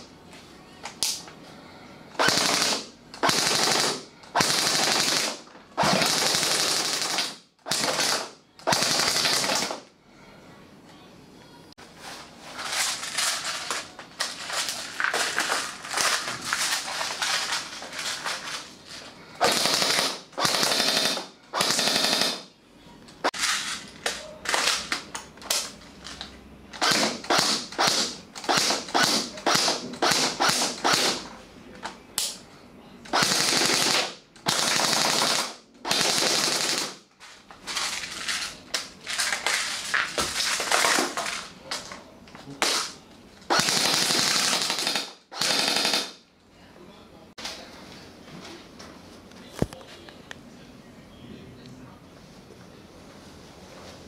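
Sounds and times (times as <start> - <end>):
airsoft gun firing: 2.2 - 9.8, 19.4 - 22.5, 26.8 - 31.2, 33.1 - 37.0, 42.6 - 46.2.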